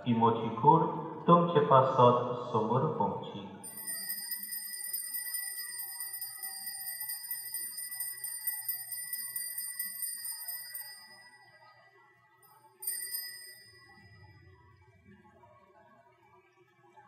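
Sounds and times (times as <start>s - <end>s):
altar bells ringing rapidly: 3.6s - 11.8s, 12.5s - 14.4s.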